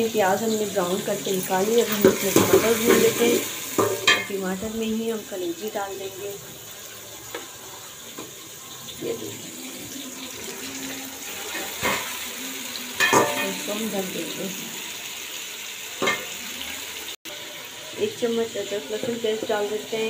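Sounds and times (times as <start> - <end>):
food sizzling in oil: 0.0 - 20.0
spatula clinking against pot: 13.0 - 13.7.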